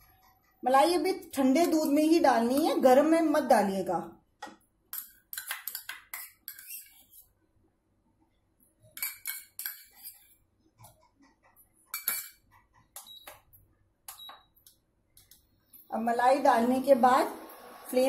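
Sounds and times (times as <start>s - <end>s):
metal spoon scraping steel bowl: 4.9s - 7.3s, 8.9s - 10.4s, 11.9s - 12.4s.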